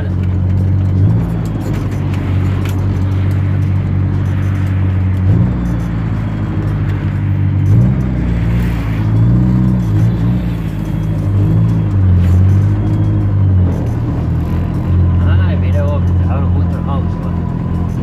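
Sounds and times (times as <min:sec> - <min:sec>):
car engine accelerating: 0:00.0 - 0:18.0.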